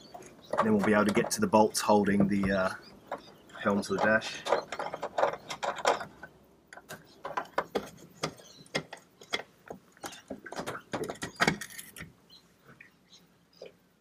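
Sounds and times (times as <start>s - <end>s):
knocks of bezel handling: 2.1s - 12.1s.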